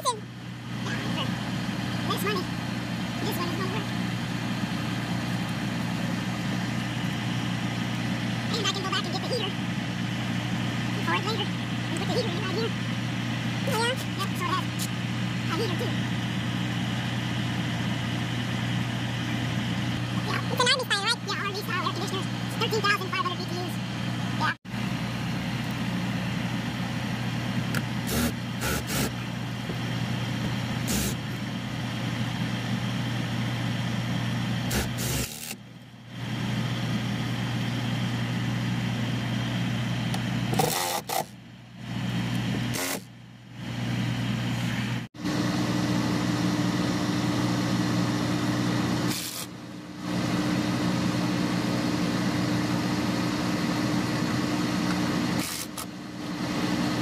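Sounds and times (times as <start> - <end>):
low engine-like hum: 0.0 - 57.0
cordless drill driving screws: 28.0 - 29.1, 30.8 - 31.2, 34.7 - 35.6, 40.5 - 41.3, 42.7 - 43.0, 55.4 - 55.9.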